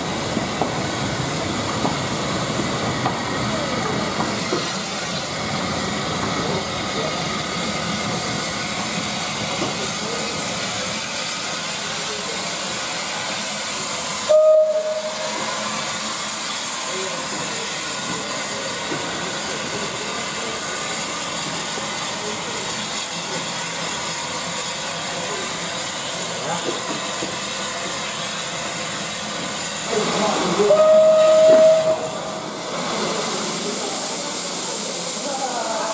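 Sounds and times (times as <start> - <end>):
steam locomotive hissing: 0.0 - 35.9
steam whistle blast: 14.3 - 15.5, 30.6 - 32.2.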